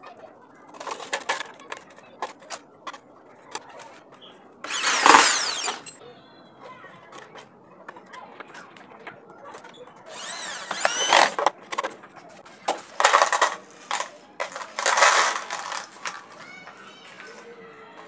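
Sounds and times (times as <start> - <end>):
metal screws rattling into container: 4.7 - 6.0, 13.0 - 16.2
power drill whining: 4.7 - 6.0, 10.1 - 11.5.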